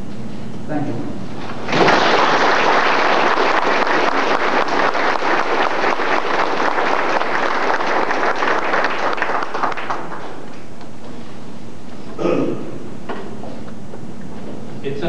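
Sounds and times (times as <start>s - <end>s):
audience applauding: 1.4s - 10.7s.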